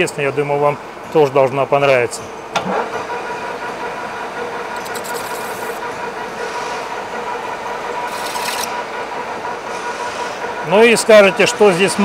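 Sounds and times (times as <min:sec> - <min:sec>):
metal lathe humming: 0:03.6 - 0:10.8
hissing scrapes: 0:04.8 - 0:05.8.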